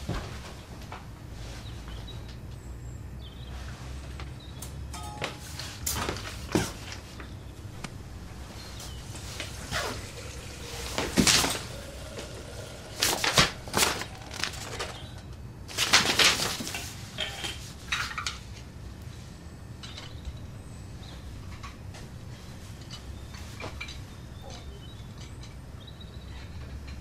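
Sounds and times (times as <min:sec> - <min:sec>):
paper rustling: 0:11.7 - 0:17.0.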